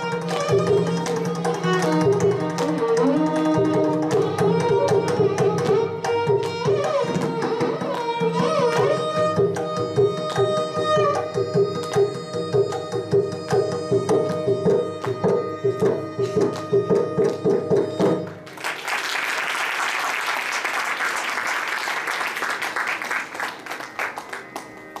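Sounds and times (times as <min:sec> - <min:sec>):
violins playing: 0:00.0 - 0:17.0
audience applause: 0:18.5 - 0:25.0.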